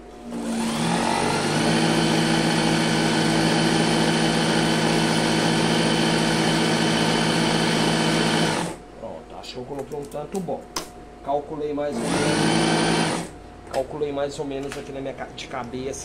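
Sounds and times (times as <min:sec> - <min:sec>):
sewing machine whirring: 0:00.2 - 0:08.8, 0:11.9 - 0:13.3.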